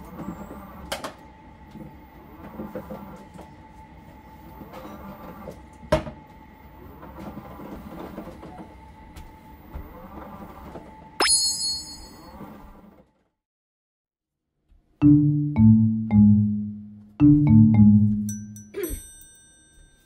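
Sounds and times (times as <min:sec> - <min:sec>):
bright ringing tone: 0:11.2 - 0:12.4.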